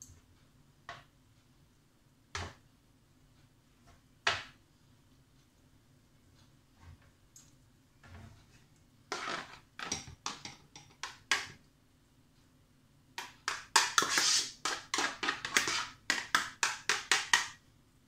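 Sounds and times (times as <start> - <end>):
spoon scraping plastic steamer: 8.1 - 11.5, 13.2 - 17.5.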